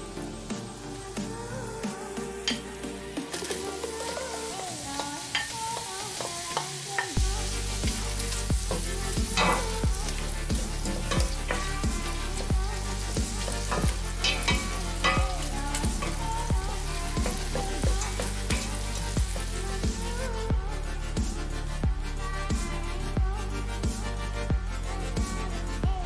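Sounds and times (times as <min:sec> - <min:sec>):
background music with beat: 0:00.0 - 0:04.7, 0:07.1 - 0:26.0
onions sizzling in butter: 0:02.4 - 0:21.7.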